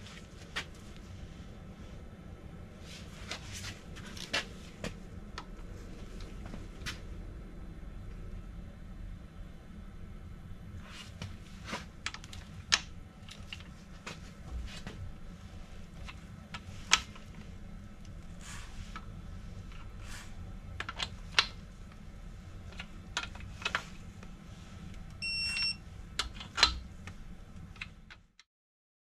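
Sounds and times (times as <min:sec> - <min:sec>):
short electronic beep: 0:25.2 - 0:25.8.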